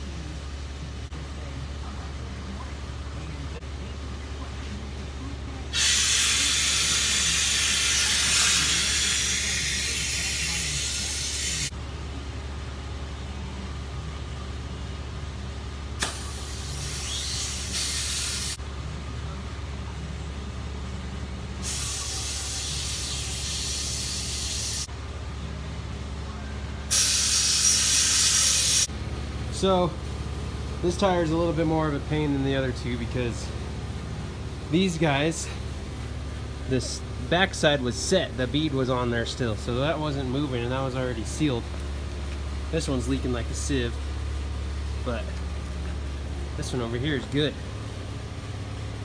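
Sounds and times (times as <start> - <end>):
steady low hum: 0.0 - 49.0
compressed air hissing: 5.7 - 11.7, 16.0 - 18.6, 21.6 - 24.9, 26.9 - 28.9.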